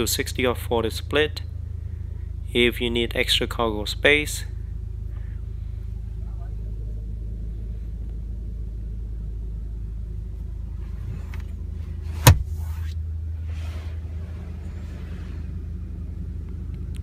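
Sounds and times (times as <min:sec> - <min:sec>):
low rumble in car cabin: 0:00.0 - 0:17.0
hand rubbing leather seat: 0:10.7 - 0:15.6.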